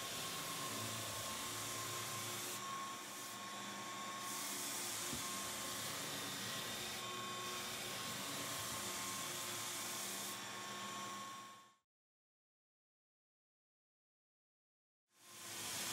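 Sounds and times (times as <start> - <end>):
floor sander sanding: 0.0 - 11.5.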